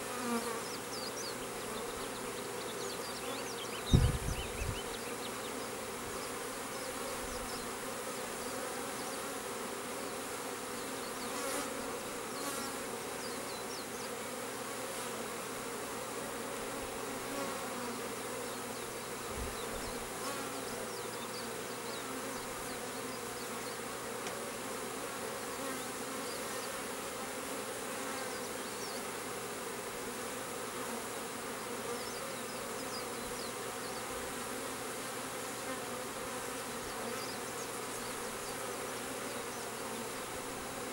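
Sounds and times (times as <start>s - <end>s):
bees buzzing: 0.0s - 40.9s.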